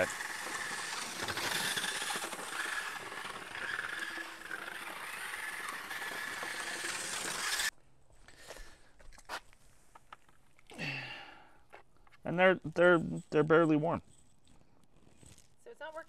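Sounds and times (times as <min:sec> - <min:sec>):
robot drive motors whining: 0:00.0 - 0:07.7
wheels rolling on asphalt: 0:00.0 - 0:07.7.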